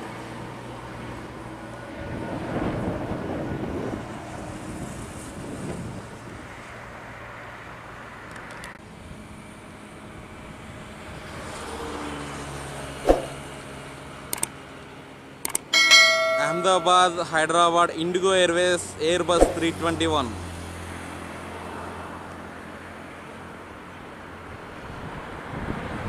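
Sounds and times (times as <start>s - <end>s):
sharp click: 14.3s - 14.5s, 15.4s - 16.8s, 19.4s - 19.6s.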